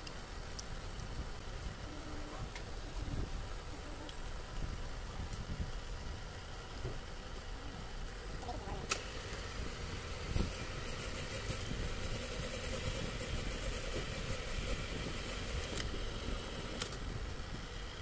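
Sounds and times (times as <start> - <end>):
sharp clicks: 8.8 - 9.4, 15.4 - 16.0, 16.7 - 17.1
boring machine running: 8.8 - 18.0.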